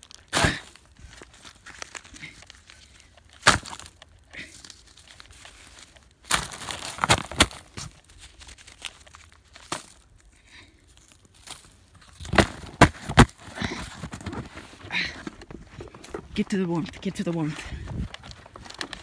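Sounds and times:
cardboard flaps rustling: 5.2s - 10.0s, 11.4s - 19.0s.

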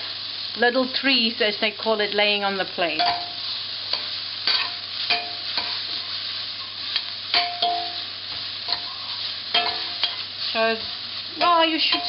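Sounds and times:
vegetables sizzling in oil: 0.0s - 12.0s
metal spoon clinking against pan: 3.0s - 3.3s, 3.9s - 5.8s, 7.0s - 8.0s, 8.7s - 10.3s, 11.4s - 12.0s.

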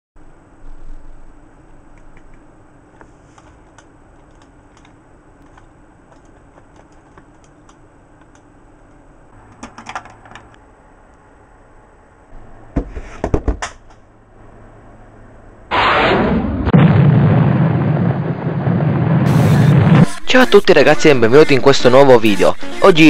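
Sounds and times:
faint steady hum: 0.2s - 16.0s
handling clicks and clatter: 3.4s - 8.5s, 9.5s - 10.6s.

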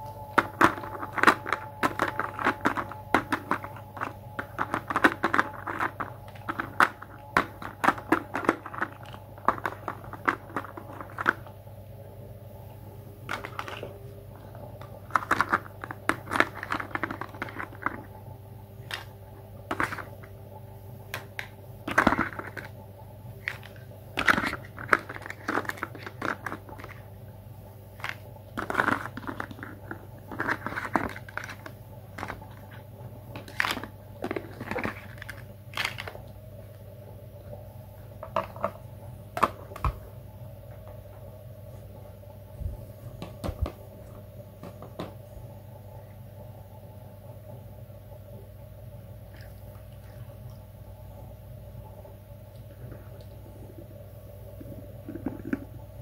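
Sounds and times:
steady low hum: 0.0s - 56.0s
plastic toys clicking and rattling: 23.4s - 27.0s, 28.0s - 32.6s.

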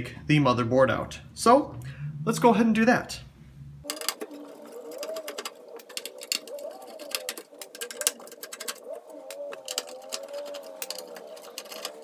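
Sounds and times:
faint wavering tone: 1.7s - 6.0s.

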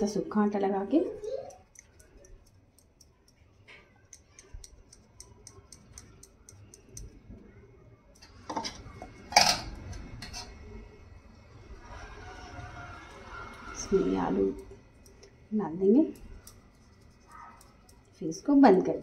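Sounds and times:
spoon and dishes clinking: 8.5s - 10.6s.

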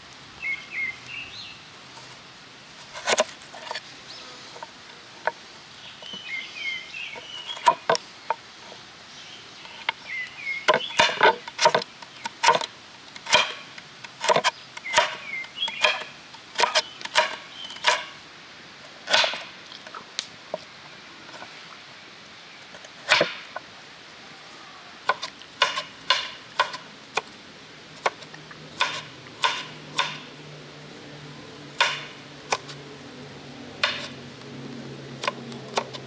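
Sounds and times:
small birds chirping: 0.4s - 1.7s, 3.7s - 12.7s, 13.5s - 18.2s
knife chopping on cutting board: 28.8s - 30.2s.

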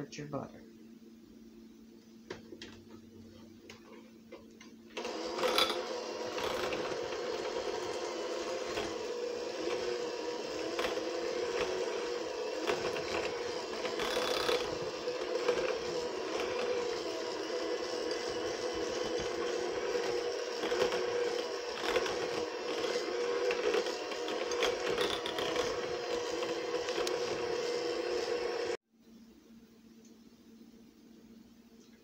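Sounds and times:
electric hand mixer running: 5.0s - 28.8s.

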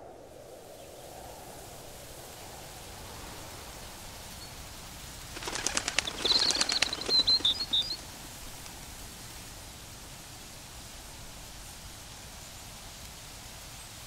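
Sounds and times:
faint steady hiss: 0.0s - 14.0s
bird wingbeats: 5.0s - 8.6s.

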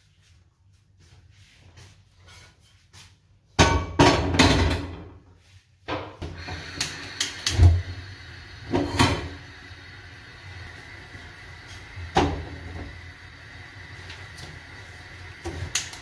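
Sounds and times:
frying pan clattering on hob grate: 3.6s - 5.1s
gas flame hissing: 6.2s - 16.0s
gas burner igniter clicks: 6.3s - 7.9s, 15.3s - 16.0s.

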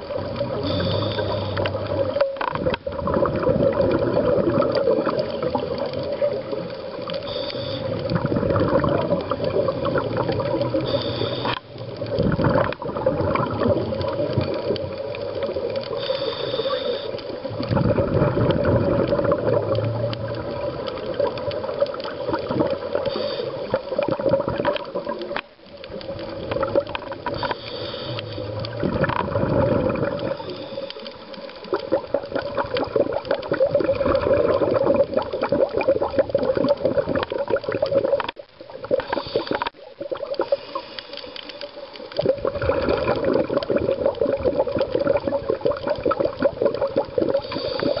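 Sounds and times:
underwater bubbling and gurgling: 0.0s - 48.0s.

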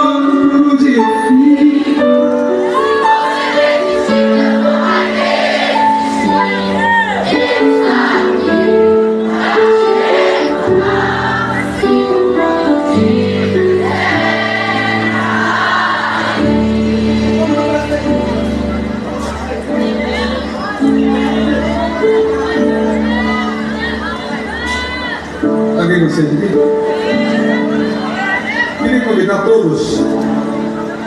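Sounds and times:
person singing: 0.0s - 3.0s
keyboard chords: 0.0s - 31.0s.

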